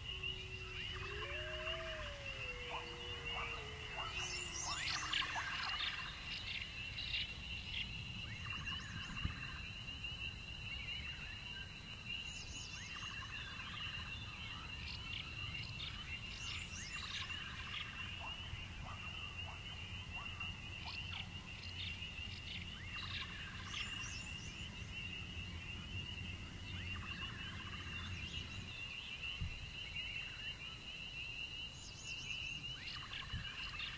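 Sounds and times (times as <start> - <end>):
frog calls: 0.0 - 7.8
crickets trilling: 0.0 - 12.2.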